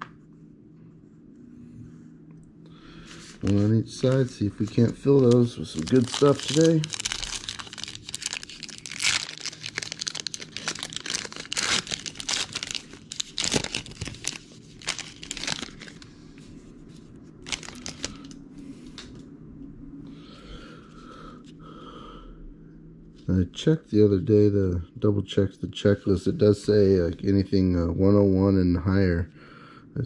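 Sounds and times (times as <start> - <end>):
plastic wrapping crinkling and tearing: 3.4 - 16.1, 17.4 - 18.4.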